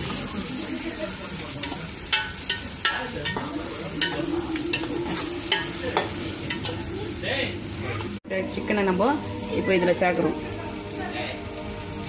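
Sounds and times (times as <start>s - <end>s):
masala sizzling: 0.0s - 12.0s
spoon clinking against pot: 1.6s - 6.8s.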